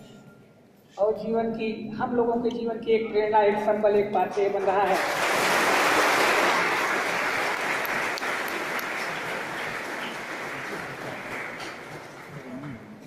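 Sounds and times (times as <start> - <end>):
audience applauding: 4.6 - 12.7.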